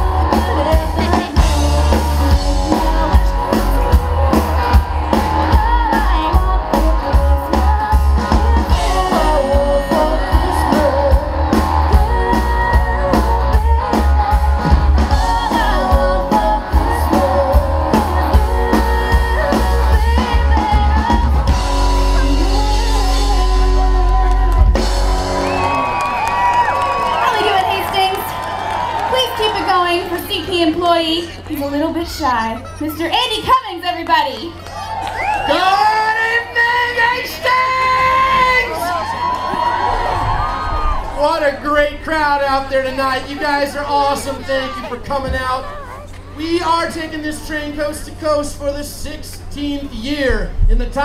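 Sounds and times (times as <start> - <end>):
woman singing into microphone: 0.0 - 24.9
electric guitar: 0.0 - 27.3
drums: 0.0 - 51.0.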